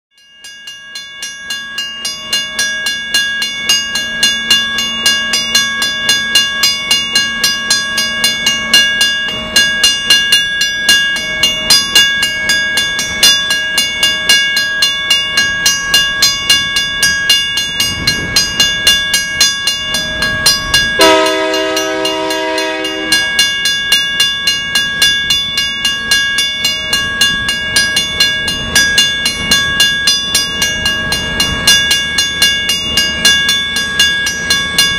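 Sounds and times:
crossing warning bell ringing: 0.1 - 34.9
locomotive horn blast: 21.0 - 23.3.

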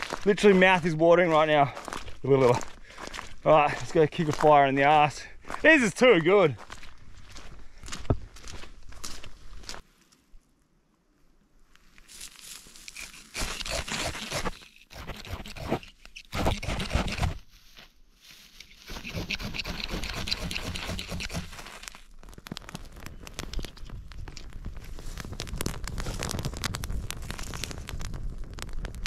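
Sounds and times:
dry grass crunched by hand: 0.0 - 10.5, 11.6 - 15.4, 16.8 - 29.0
fire crackling: 19.0 - 29.0.

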